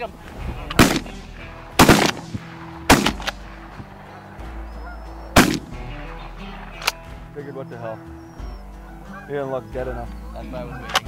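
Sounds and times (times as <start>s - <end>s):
shotgun shots: 0.7s - 7.0s.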